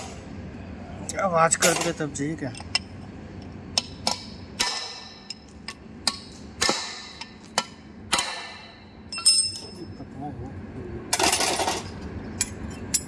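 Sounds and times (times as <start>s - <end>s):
hammer striking steel: 3.7s - 9.8s.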